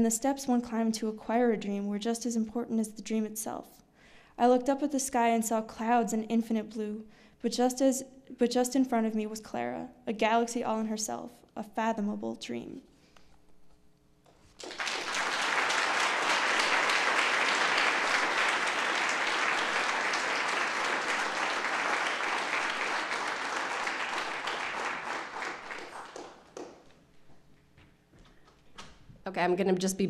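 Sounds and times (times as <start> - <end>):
audience applauding: 14.4 - 27.0.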